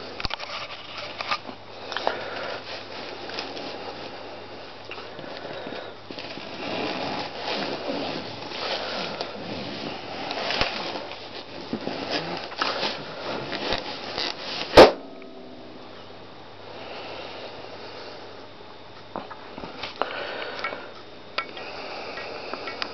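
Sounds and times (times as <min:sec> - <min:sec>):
balloon rubber squeaking: 0:13.6 - 0:14.8
balloon bursting pop: 0:14.8 - 0:15.3.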